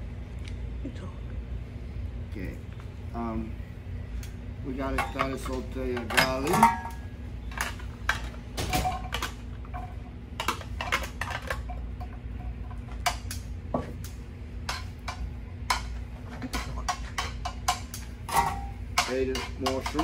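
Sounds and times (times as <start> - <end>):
steady low hum: 0.0 - 20.0
metal tongs clinking on pan: 14.7 - 20.0.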